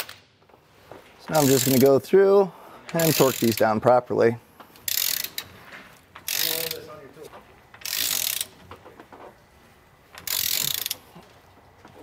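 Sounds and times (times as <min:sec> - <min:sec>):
ratcheting socket wrench clicking: 0:01.4 - 0:01.9, 0:03.0 - 0:03.6, 0:04.8 - 0:05.5, 0:06.2 - 0:06.9, 0:07.8 - 0:08.5, 0:10.2 - 0:11.0.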